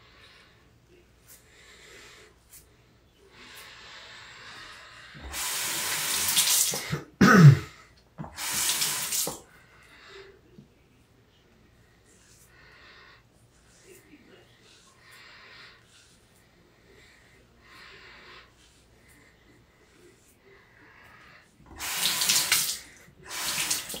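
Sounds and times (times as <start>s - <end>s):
tap water running into sink: 5.2s - 6.8s, 8.2s - 9.4s, 21.7s - 24.0s.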